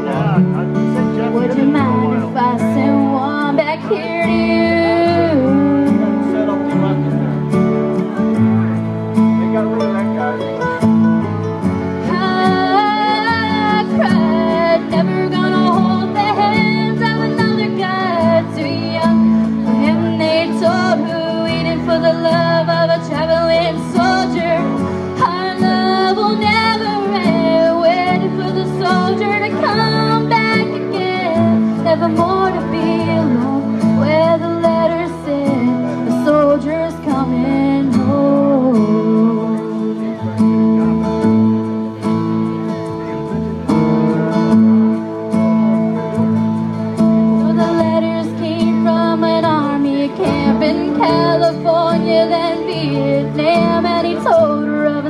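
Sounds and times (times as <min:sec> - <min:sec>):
acoustic guitar: 0:00.0 - 0:55.0
woman singing a ballad: 0:01.4 - 0:07.0, 0:12.0 - 0:40.2, 0:47.4 - 0:55.0.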